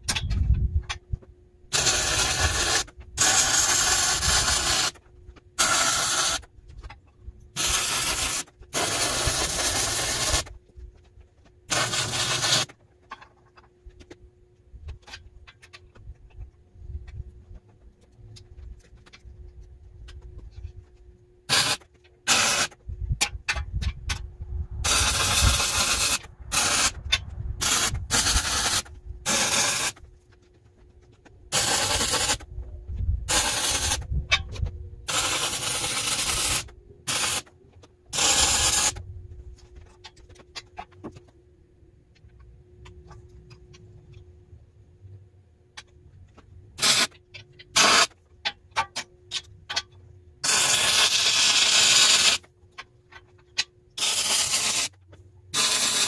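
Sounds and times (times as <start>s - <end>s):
faint steady hum: 0.0s - 56.0s
arc welding crackling hiss: 1.7s - 5.0s, 5.6s - 6.5s, 7.6s - 10.6s, 11.7s - 12.7s, 21.5s - 22.8s, 24.8s - 27.0s, 27.6s - 30.0s, 31.5s - 32.5s, 33.3s - 34.1s, 35.1s - 37.5s, 38.1s - 39.0s, 46.8s - 47.1s, 47.8s - 48.1s, 50.4s - 52.5s, 54.0s - 56.0s.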